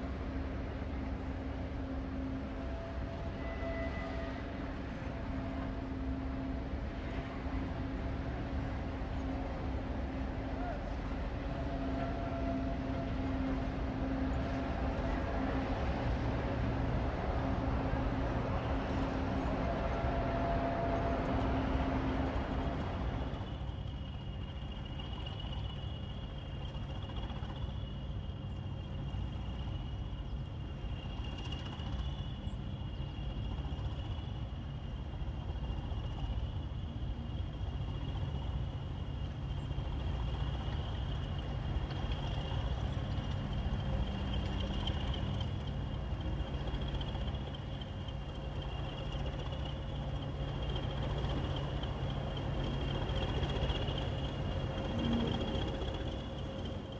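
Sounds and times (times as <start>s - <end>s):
diesel locomotive engines rumbling: 0.0s - 56.9s
high whistle: 2.8s - 4.7s.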